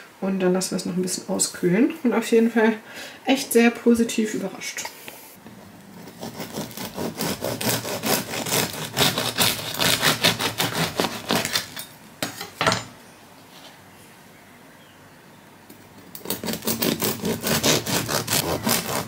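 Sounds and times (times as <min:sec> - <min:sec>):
knife sawing through bread crust: 0:06.0 - 0:11.8, 0:16.2 - 0:19.0.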